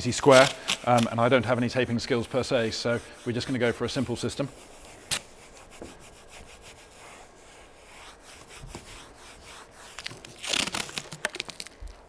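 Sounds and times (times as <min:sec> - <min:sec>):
brush scrubbing car roof: 0:00.0 - 0:10.4.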